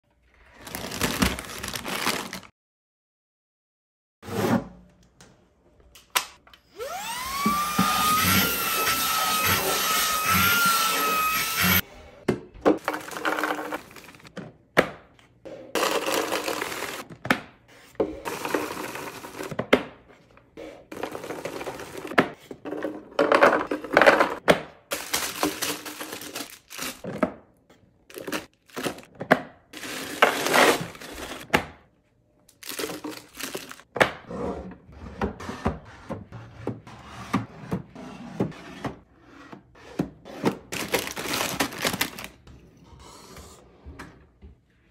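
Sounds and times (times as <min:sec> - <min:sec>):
wrappers crinkling: 0:00.5 - 0:02.5, 0:24.9 - 0:27.0, 0:32.5 - 0:33.8, 0:40.8 - 0:42.4
dry snacks rattling into bins: 0:24.9 - 0:27.0, 0:32.6 - 0:33.8, 0:40.7 - 0:42.4.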